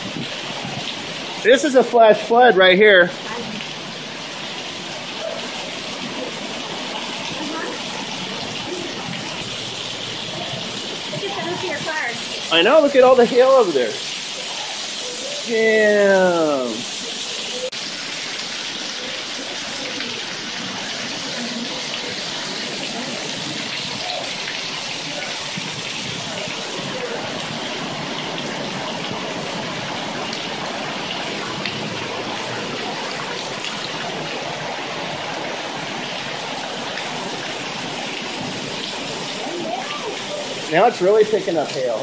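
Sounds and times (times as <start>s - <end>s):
heavy rain and hail: 0.0s - 42.0s.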